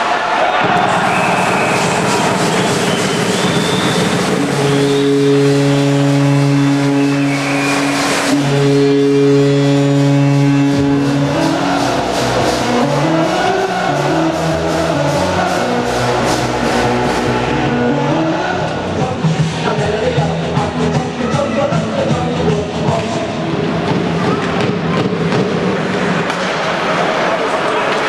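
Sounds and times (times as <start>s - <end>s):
arena crowd cheering: 0.0s - 9.2s, 10.6s - 18.8s, 26.0s - 28.0s
goal music: 0.6s - 19.6s
low steady horn blasts: 3.9s - 18.4s.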